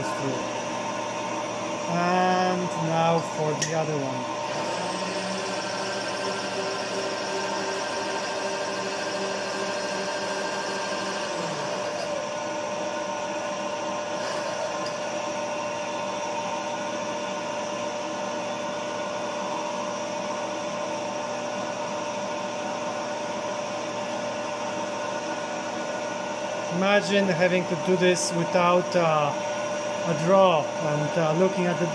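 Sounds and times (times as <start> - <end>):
milling machine spindle running: 0.0 - 17.9, 23.6 - 31.9
drill boring into metal: 3.0 - 12.5, 14.1 - 15.2.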